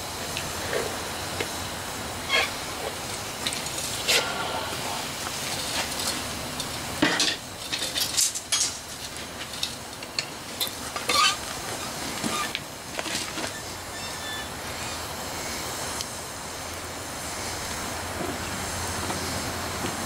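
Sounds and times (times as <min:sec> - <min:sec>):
furnace burner rushing: 0:00.0 - 0:20.0
metal tongs clanking on crucible: 0:02.3 - 0:04.3, 0:05.3 - 0:11.5.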